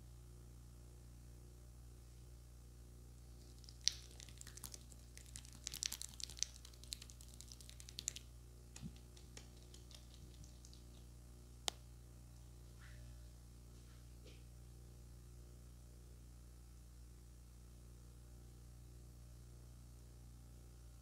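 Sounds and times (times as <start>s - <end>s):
low steady hum: 0.0s - 21.0s
hands rubbing cream on face: 3.5s - 8.2s, 8.8s - 11.1s.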